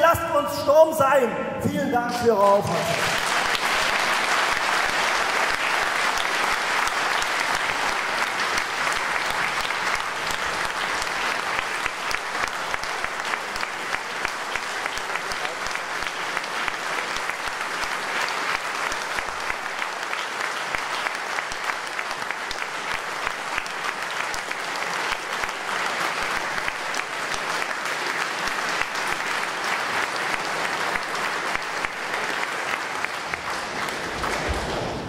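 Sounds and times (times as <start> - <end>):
audience applauding: 2.3 - 35.0.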